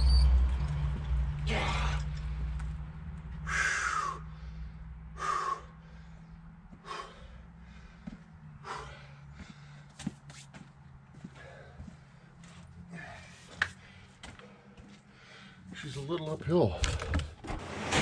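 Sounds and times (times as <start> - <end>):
man breathing hard: 3.4 - 10.1, 11.1 - 15.8.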